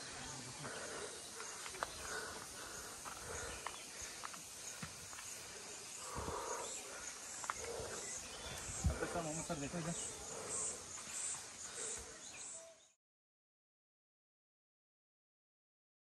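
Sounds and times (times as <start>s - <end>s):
footsteps on dirt trail: 0.0s - 12.5s
insects chirping: 0.0s - 12.9s.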